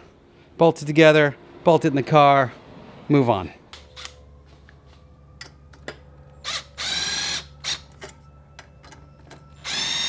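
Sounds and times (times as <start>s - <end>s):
cordless drill driving bolts: 6.4s - 8.2s, 8.8s - 10.0s.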